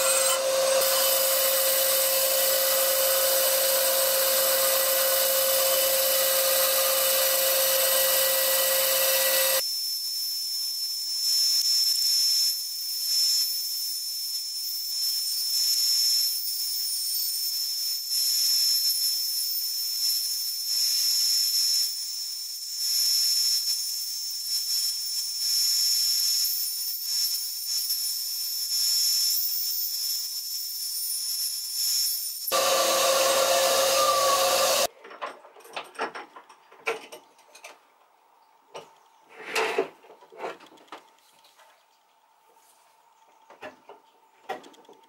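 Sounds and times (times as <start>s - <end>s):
bandsaw cutting wood: 0.0s - 9.6s, 32.5s - 34.9s.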